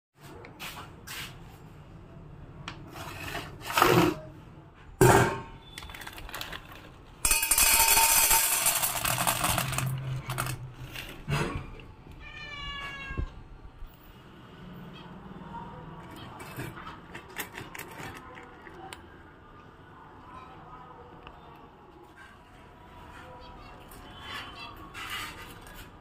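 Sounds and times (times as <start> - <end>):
dry kibble rattling into metal bowl: 5.8 - 11.2
cat meowing: 12.2 - 13.4.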